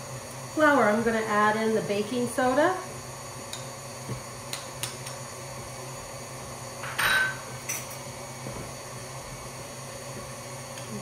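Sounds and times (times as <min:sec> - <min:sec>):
kitchen items clattering and ringing: 0:06.8 - 0:07.9.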